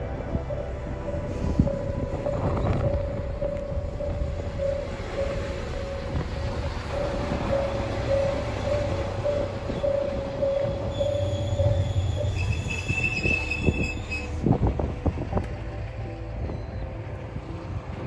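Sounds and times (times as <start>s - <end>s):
diesel railcar engine rumble: 0.0s - 18.0s
level crossing alarm ringing: 0.5s - 14.3s
high wheel squeal: 4.1s - 14.5s.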